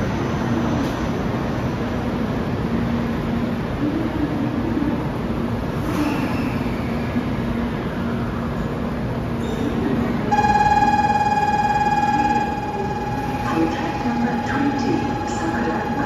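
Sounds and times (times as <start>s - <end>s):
train humming: 6.6s - 16.0s
electronic departure bell ringing: 10.3s - 16.0s.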